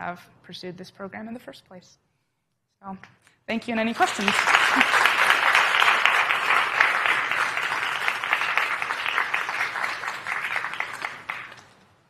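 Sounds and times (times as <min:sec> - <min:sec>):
audience applauding: 0:03.9 - 0:11.8.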